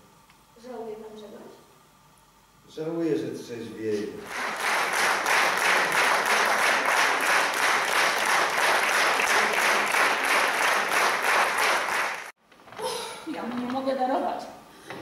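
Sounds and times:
audience applauding: 4.2 - 12.4.

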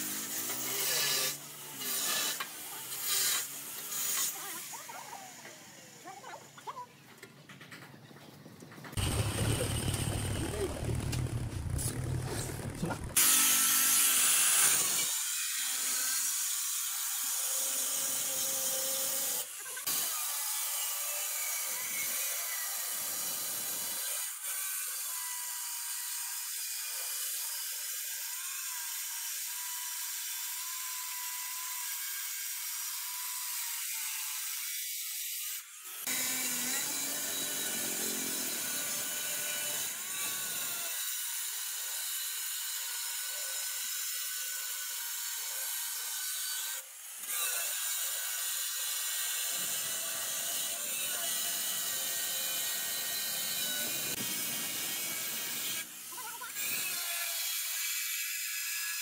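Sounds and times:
angle grinder sanding stone: 0.0 - 6.6.

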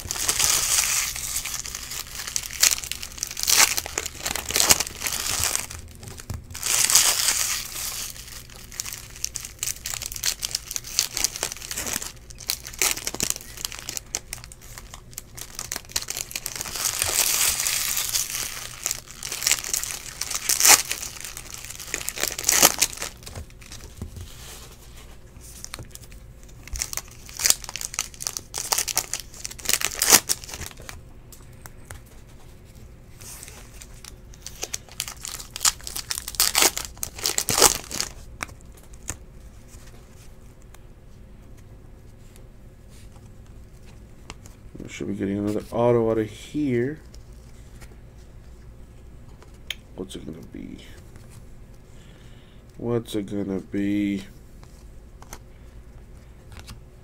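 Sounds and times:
foil wrappers tearing and crinkling: 0.0 - 23.9, 25.5 - 31.0, 33.3 - 39.2.

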